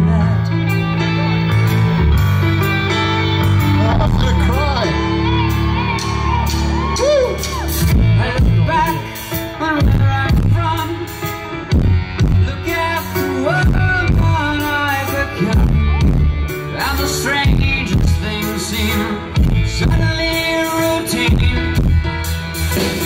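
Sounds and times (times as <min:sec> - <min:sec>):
person singing: 0:00.0 - 0:23.0
punk rock band playing: 0:00.0 - 0:23.0.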